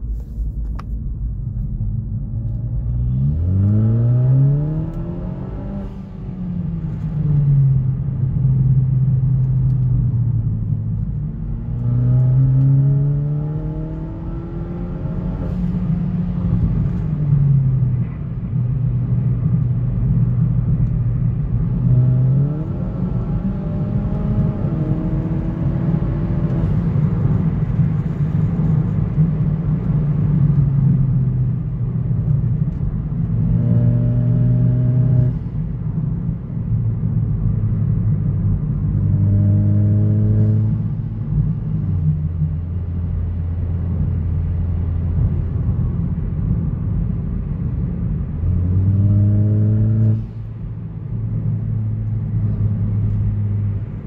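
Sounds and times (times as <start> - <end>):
car engine accelerating: 0.3 - 54.0.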